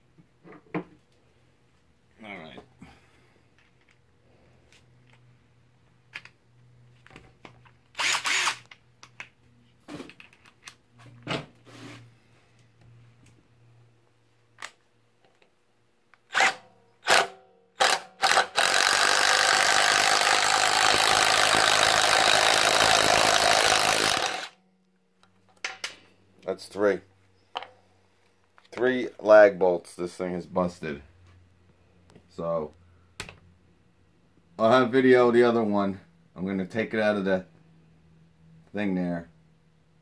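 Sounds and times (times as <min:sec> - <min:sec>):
impact driver hammering: 0:16.4 - 0:24.5.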